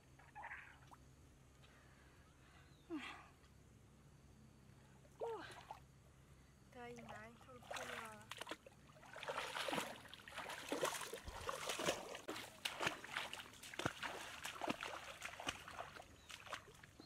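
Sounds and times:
bare feet splashing through water: 0:07.0 - 0:17.0.

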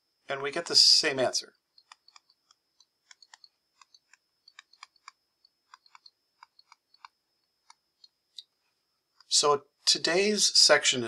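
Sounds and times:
faint high-pitched whine: 0:00.0 - 0:11.0
stylus tapping on tablet screen: 0:01.7 - 0:08.2.

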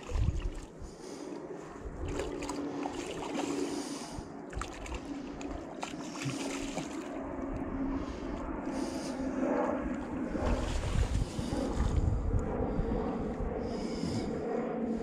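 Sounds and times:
wind buffeting microphone: 0:00.0 - 0:15.0
fish thrashing in water: 0:02.0 - 0:07.2.

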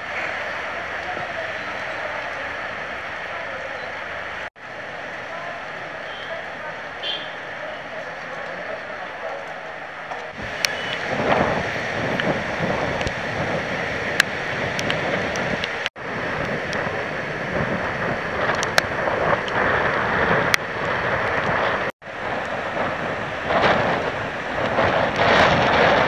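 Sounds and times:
wind buffeting microphone: 0:10.2 - 0:26.0.

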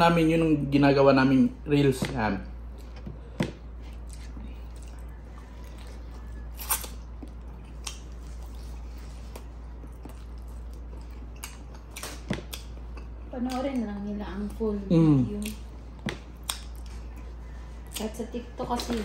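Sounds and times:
steady low hum: 0:00.0 - 0:19.0
person chewing: 0:02.6 - 0:13.9, 0:14.9 - 0:18.2.

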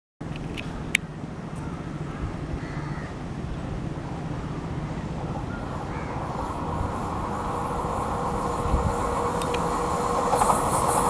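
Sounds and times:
locomotive low rumble: 0:03.2 - 0:11.0
high hiss: 0:05.0 - 0:11.0.

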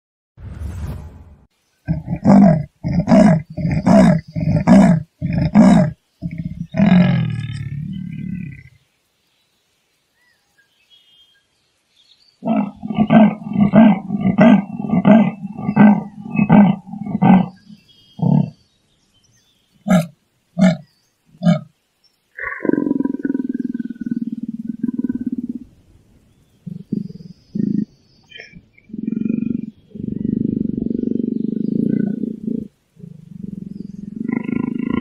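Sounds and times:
leopard low growl: 0:01.9 - 0:08.8, 0:12.4 - 0:18.6, 0:22.4 - 0:25.7, 0:26.7 - 0:35.0.

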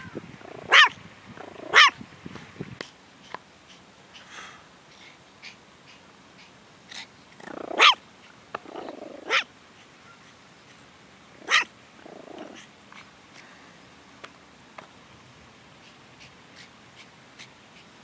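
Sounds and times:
small dog barking: 0:00.6 - 0:02.0, 0:07.5 - 0:08.0, 0:08.9 - 0:09.5, 0:11.4 - 0:11.7
dog growling: 0:07.4 - 0:07.9, 0:08.6 - 0:09.4, 0:11.4 - 0:12.7.

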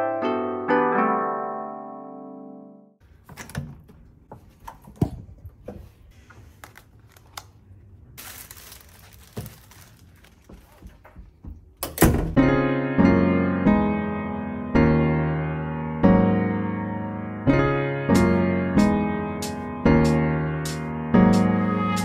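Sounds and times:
music: 0:00.0 - 0:03.0, 0:12.3 - 0:22.0
plastic bag rustling: 0:06.0 - 0:11.2.

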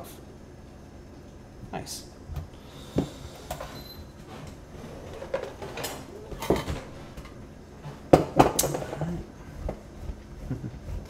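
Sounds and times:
kitchen items knocking and clinking: 0:05.1 - 0:09.1.

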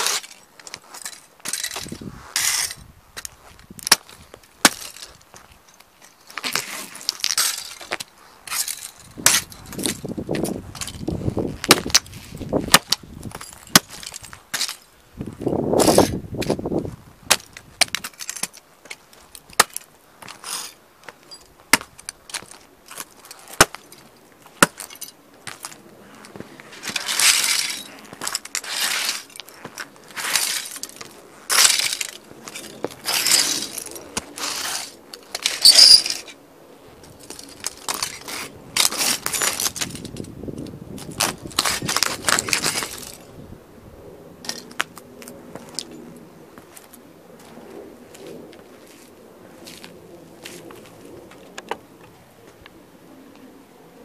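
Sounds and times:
crunching of broken parts: 0:00.0 - 0:36.4, 0:37.0 - 0:43.3.

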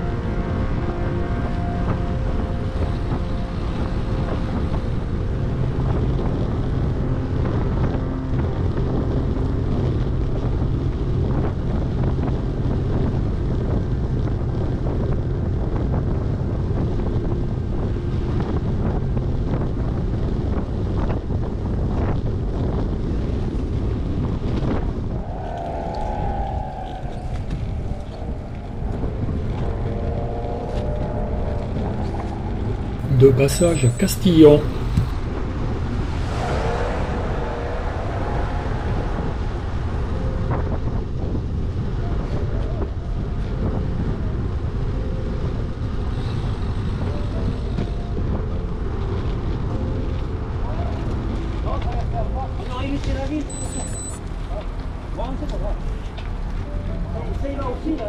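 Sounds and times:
wind rush on microphone: 0:00.0 - 0:33.1, 0:34.6 - 0:58.0
wavering pitched tones: 0:25.1 - 0:35.1.

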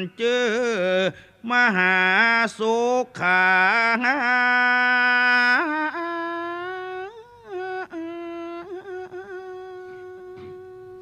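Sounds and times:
monk chanting melodically: 0:00.0 - 0:11.0.

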